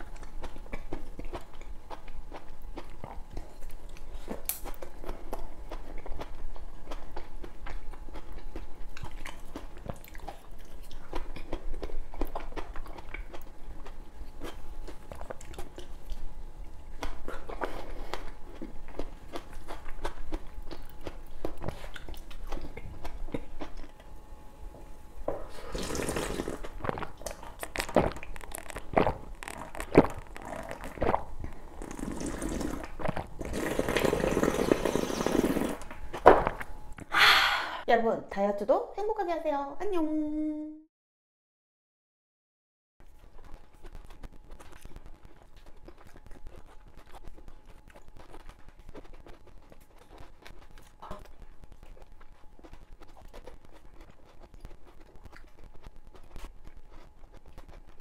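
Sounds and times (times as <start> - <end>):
chewing soft food: 0.0 - 36.7, 43.0 - 58.0
slurping liquid: 25.4 - 36.0.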